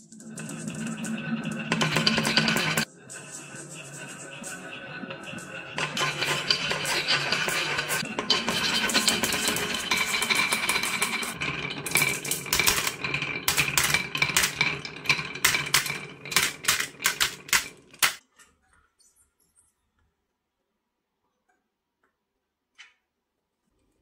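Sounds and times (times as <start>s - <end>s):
marbles rolling down wooden slope: 0.0s - 18.2s
marbles clicking into toy truck: 11.9s - 18.2s.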